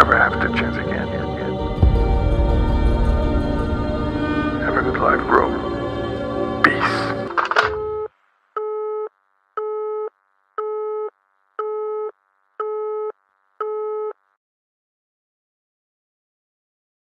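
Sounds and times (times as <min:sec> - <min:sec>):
phone alarm beeping: 0:07.7 - 0:14.2.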